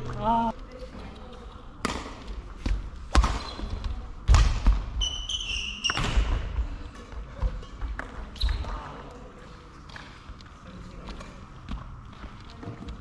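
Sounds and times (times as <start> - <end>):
shoe squeak on floor: 3.4 - 3.7, 5.0 - 6.2, 8.4 - 8.7.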